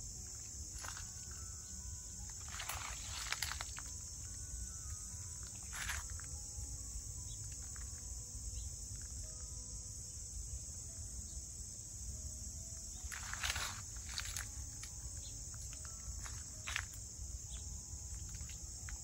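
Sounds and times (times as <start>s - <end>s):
high-pitched insect chorus: 0.0s - 19.0s
rustles: 2.2s - 6.4s, 13.0s - 19.0s.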